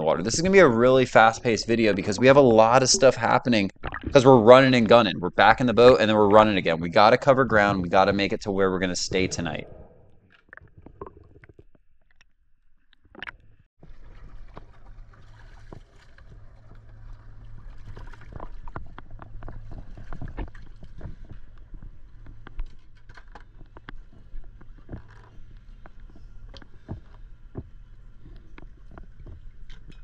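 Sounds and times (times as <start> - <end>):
boat engine hum: 0.0 - 10.0.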